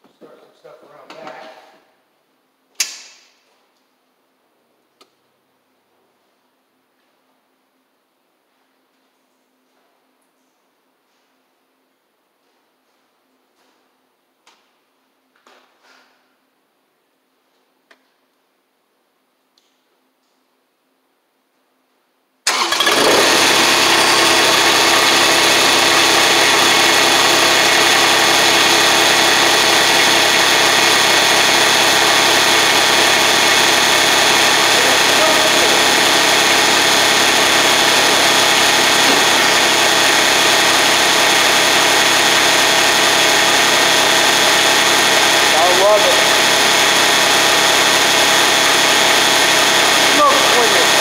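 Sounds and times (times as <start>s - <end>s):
diesel engine starting and idling: 22.4s - 51.0s.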